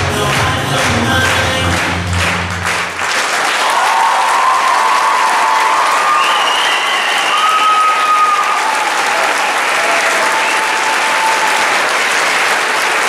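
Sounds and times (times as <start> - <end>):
audience applauding: 0.0 - 13.0
crowd cheering: 0.0 - 13.0.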